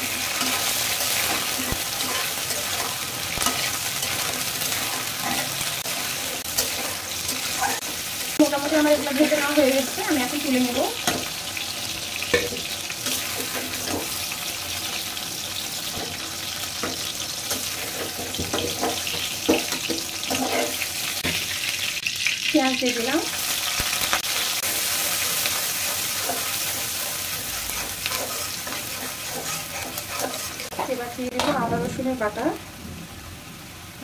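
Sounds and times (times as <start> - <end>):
oil sizzling in a pot: 0.0 - 34.0.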